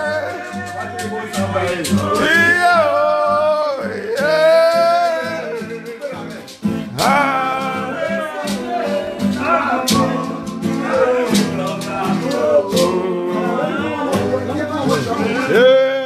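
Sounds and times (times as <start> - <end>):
acoustic guitar strumming: 0.0 - 16.0
man singing: 0.0 - 16.0.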